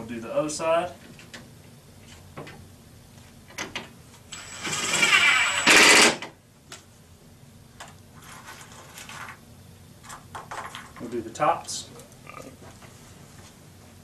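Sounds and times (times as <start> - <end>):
impact driver motor whine: 4.3 - 6.2.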